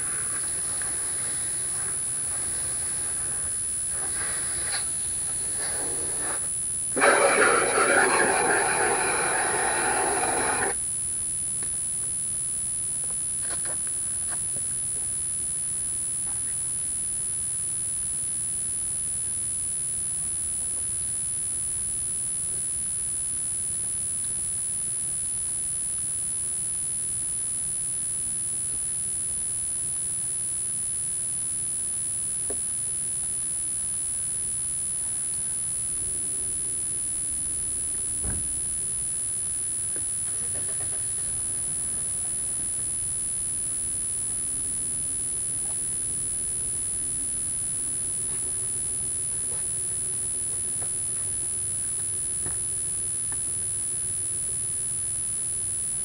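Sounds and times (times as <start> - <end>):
hose spraying water on car: 7.0 - 10.8.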